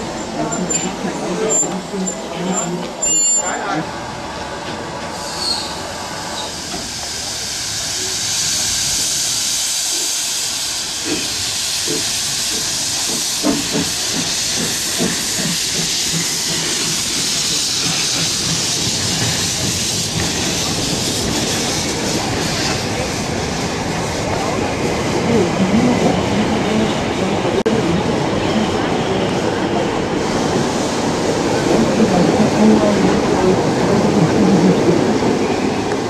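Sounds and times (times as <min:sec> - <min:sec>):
steam hissing: 0:05.0 - 0:27.6, 0:28.3 - 0:36.0
steam locomotive exhaust chuffs: 0:06.4 - 0:25.0.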